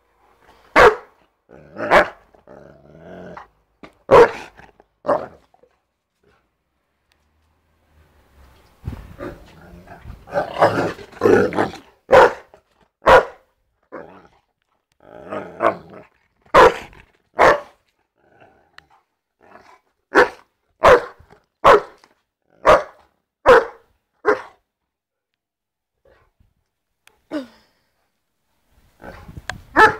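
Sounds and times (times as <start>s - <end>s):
deep dog barks: 0.6s - 5.8s, 9.1s - 14.4s, 15.0s - 17.8s, 19.4s - 24.7s, 29.0s - 29.9s
dog growling: 1.5s - 3.6s, 9.1s - 12.0s, 13.9s - 17.2s, 18.2s - 19.9s.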